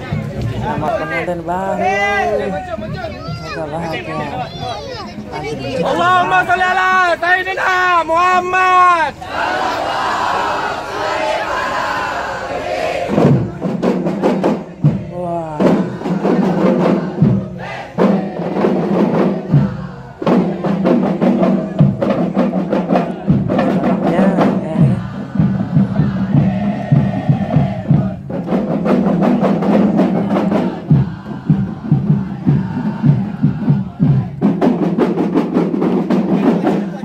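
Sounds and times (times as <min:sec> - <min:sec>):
crowd voices: 0:00.0 - 0:37.0
drums beaten in fast rhythm: 0:13.1 - 0:37.0.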